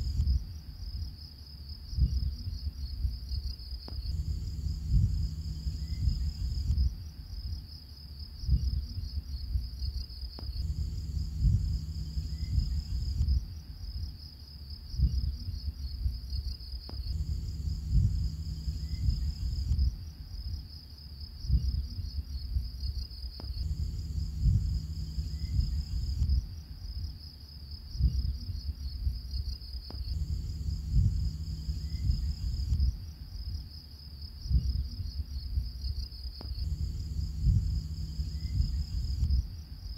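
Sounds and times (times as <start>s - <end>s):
high chirring like crickets: 0.0s - 39.9s
irregular thumps: 3.9s - 7.0s, 10.4s - 13.6s, 16.9s - 20.0s, 23.4s - 26.6s, 29.9s - 33.1s, 36.4s - 39.6s
low rumble: 3.9s - 7.6s, 10.4s - 14.2s, 16.9s - 20.2s, 23.4s - 27.1s, 29.9s - 33.6s, 36.4s - 39.9s.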